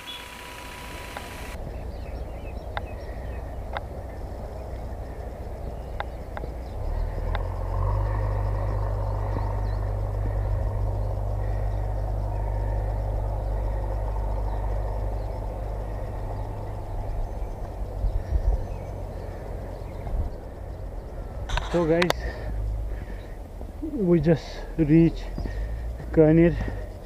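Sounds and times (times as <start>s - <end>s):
bird chirps: 0.0s - 27.0s
wind buffeting microphone: 1.5s - 27.0s
faint clicks: 2.7s - 2.9s, 3.7s - 3.9s, 7.2s - 7.5s, 21.5s - 22.4s.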